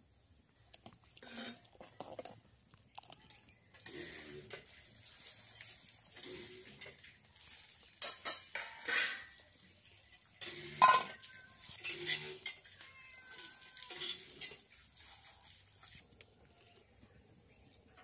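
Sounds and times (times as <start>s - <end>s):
metal plates and bowls clattering: 8.0s - 9.5s, 10.4s - 14.8s.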